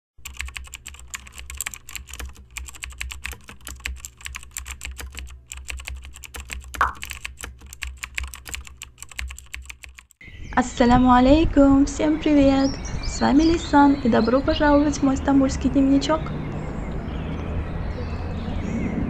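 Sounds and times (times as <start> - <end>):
keyboard key clicks: 0.2 - 10.1.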